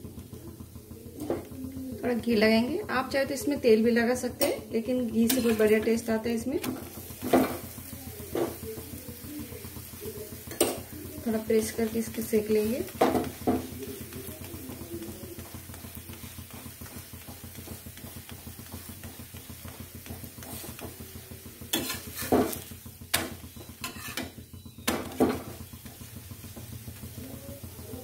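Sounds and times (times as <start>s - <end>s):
faint sizzle: 0.0s - 28.0s
metal spatula scraping griddle: 21.6s - 24.4s.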